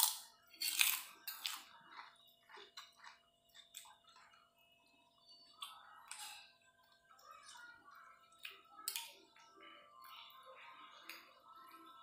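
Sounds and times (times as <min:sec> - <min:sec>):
close-up chewing: 0:00.8 - 0:04.4.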